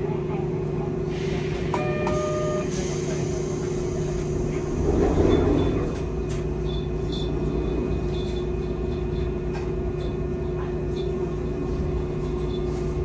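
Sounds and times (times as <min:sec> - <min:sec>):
tram electrical hum: 0:00.0 - 0:13.0
short electronic beep: 0:01.8 - 0:02.7.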